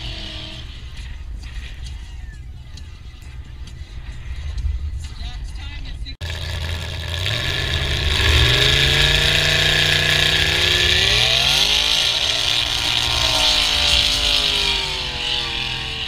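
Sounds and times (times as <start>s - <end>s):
truck engine revving: 0.0s - 1.8s, 6.2s - 16.0s.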